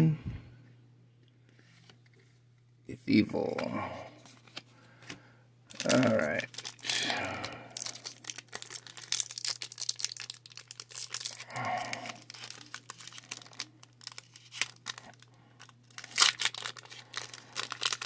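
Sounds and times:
foil wrapper tearing and crinkling: 0:05.7 - 0:18.0.

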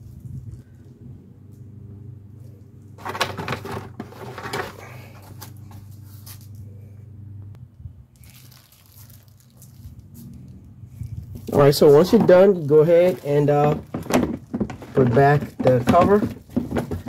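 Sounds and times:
steady low hum: 0:00.0 - 0:08.2
cardboard packaging crinkling: 0:08.2 - 0:17.0.

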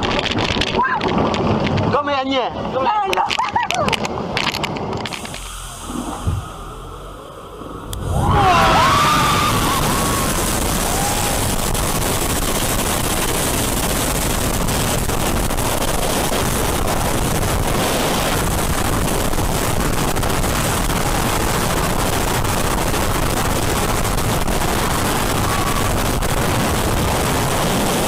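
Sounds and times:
wind rushing over camera: 0:00.0 - 0:28.0.

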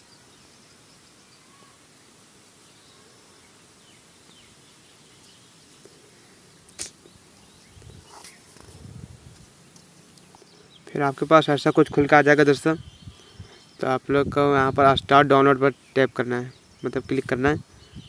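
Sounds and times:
faint high chirps: 0:00.0 - 0:01.9
faint background hiss: 0:00.0 - 0:18.0
sharp click: 0:06.7 - 0:07.0.

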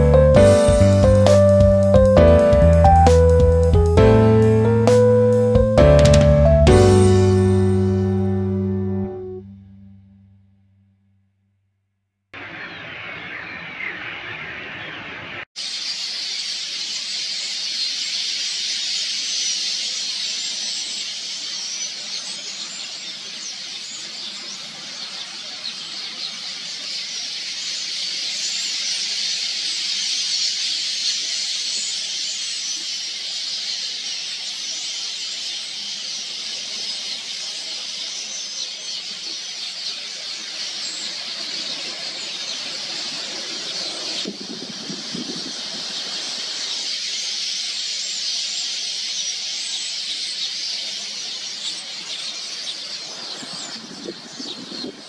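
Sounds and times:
huge flock of birds chattering: 0:12.4 - 0:55.0.

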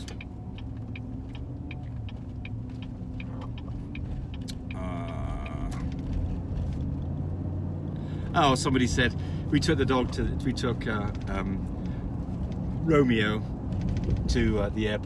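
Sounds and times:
turn signal clicking: 0:00.0 - 0:07.2
car engine and tyre noise: 0:00.0 - 0:15.0.

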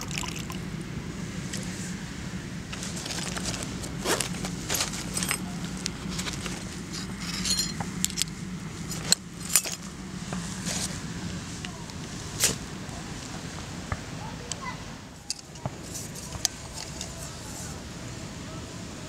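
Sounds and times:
small hard items clicking and rattling: 0:02.8 - 0:08.4, 0:15.3 - 0:17.3
metallic jingle: 0:07.2 - 0:07.8.

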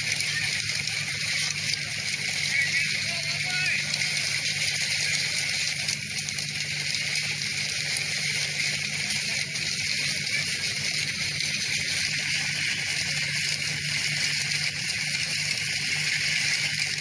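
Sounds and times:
hail striking pebble beach: 0:00.0 - 0:17.0.

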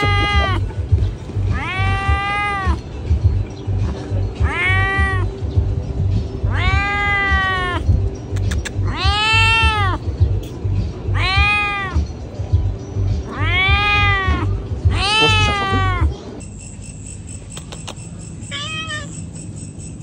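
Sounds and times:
cat meowing loudly: 0:00.0 - 0:00.6, 0:01.5 - 0:02.8, 0:04.4 - 0:05.3, 0:06.5 - 0:07.9, 0:08.9 - 0:10.0, 0:11.1 - 0:12.0, 0:13.3 - 0:16.1, 0:18.5 - 0:19.1.

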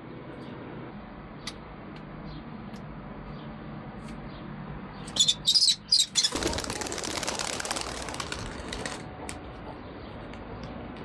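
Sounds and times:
bird chicks high calls: 0:05.0 - 0:07.2
wings fluttering: 0:05.2 - 0:09.3.

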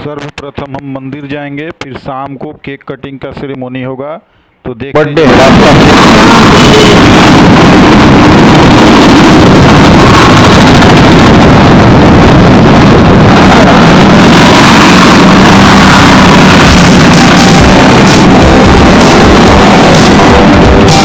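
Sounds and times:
wind rush on microphone: 0:05.3 - 0:21.0
scooter engine: 0:11.1 - 0:21.0.

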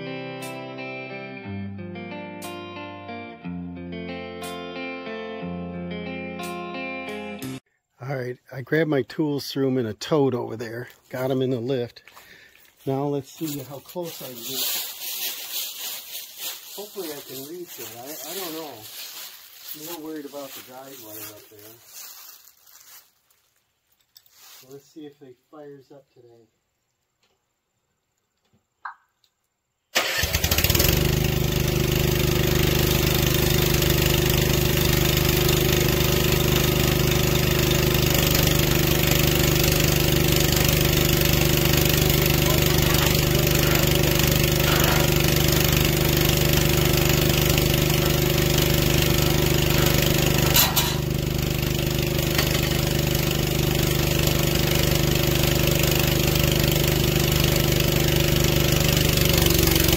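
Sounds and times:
engine starting and idling: 0:29.9 - 0:59.9.

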